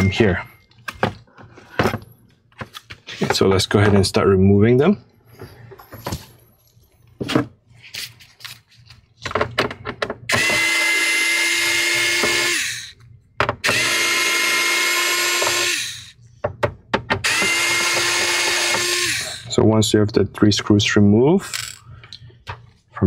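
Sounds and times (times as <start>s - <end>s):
electric screwdriver motor whine: 10.3s - 13.0s, 13.6s - 16.2s, 17.2s - 19.5s.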